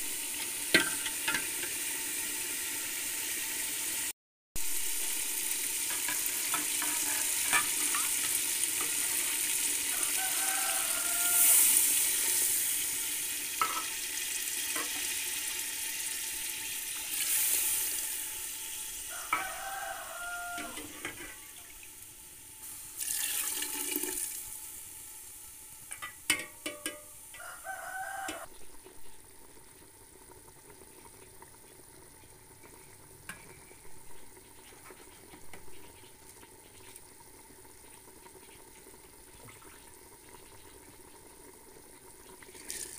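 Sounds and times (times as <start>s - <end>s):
liquid hissing in hot pot: 0.0s - 25.9s, 42.4s - 42.9s
food sizzling in hot oil: 0.0s - 42.9s.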